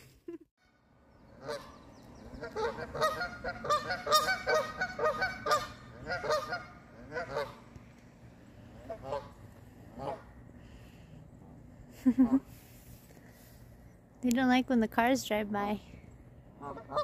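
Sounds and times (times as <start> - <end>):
geese honking: 0.6 - 7.8, 8.6 - 10.5, 16.5 - 17.0.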